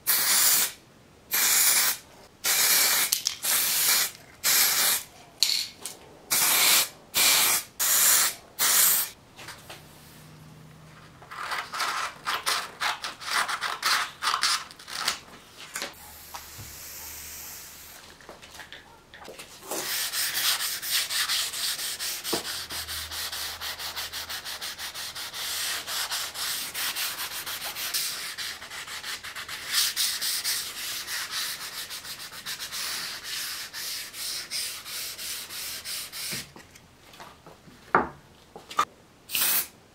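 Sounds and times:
short hissing spray bursts: 0.1s - 5.1s, 6.3s - 9.2s, 16.1s - 18.1s, 39.3s - 39.7s.

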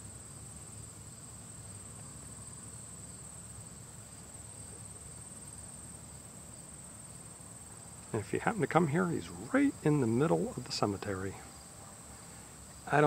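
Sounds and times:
insects chirring: 0.0s - 13.0s.

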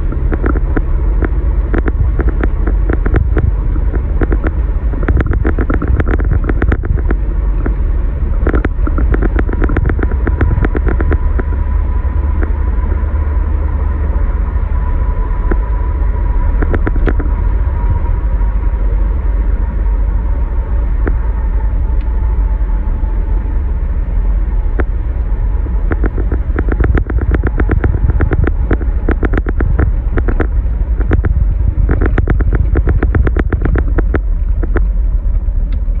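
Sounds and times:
tyre and road noise in car: 0.0s - 36.0s
sharp clicks: 0.1s - 7.8s, 8.4s - 11.6s, 16.6s - 17.3s, 25.6s - 34.9s.

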